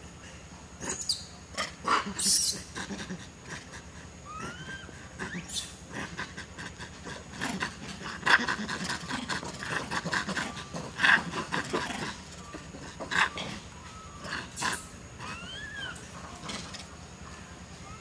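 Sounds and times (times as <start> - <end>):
monkeys making rough breathy calls: 0.7 - 18.0.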